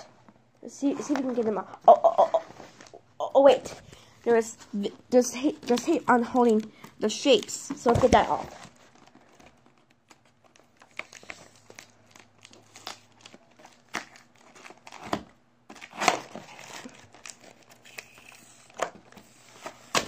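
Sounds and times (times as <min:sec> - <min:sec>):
packaging crinkling and rustling: 0:05.4 - 0:20.0
packing tape peeling: 0:09.7 - 0:20.0.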